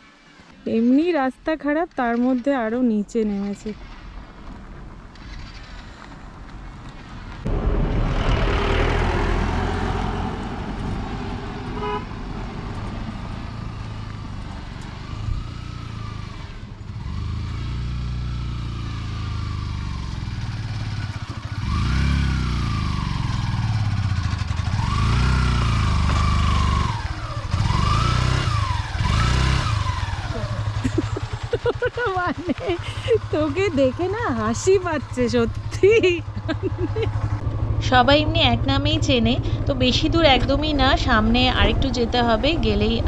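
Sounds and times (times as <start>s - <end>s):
motorcycle engine revving: 7.0s - 43.0s.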